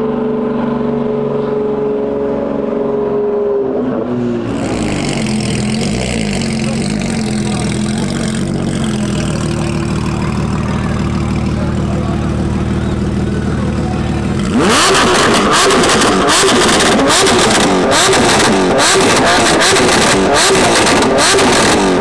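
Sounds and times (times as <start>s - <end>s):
engine revving: 0.0s - 22.0s
car engine idling: 4.4s - 22.0s.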